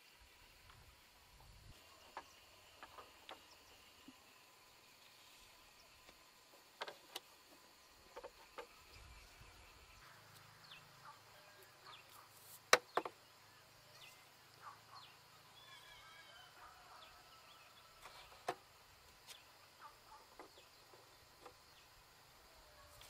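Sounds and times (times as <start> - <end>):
faint birds chirping: 0.0 - 23.0
insects buzzing: 0.0 - 23.0
bamboo stakes knocking: 12.6 - 13.2.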